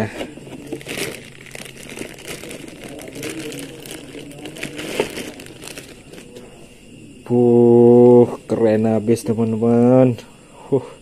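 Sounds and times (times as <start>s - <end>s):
plastic wrapping crinkling: 0.5s - 6.4s.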